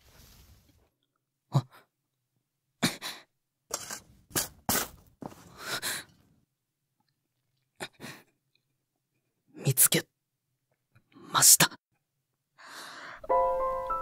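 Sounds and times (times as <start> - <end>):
shovel scraping into earth: 3.7 - 5.1.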